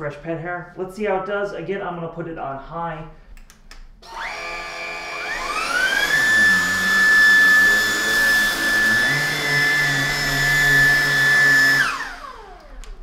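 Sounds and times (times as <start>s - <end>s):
vacuum cleaner motor whine: 4.0s - 13.0s.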